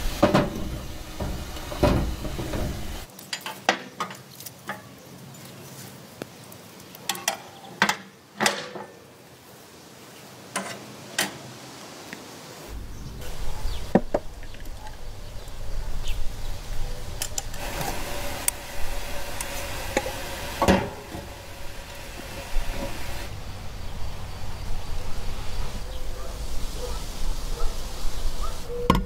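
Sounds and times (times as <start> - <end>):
steady low rumble: 12.7 - 28.4.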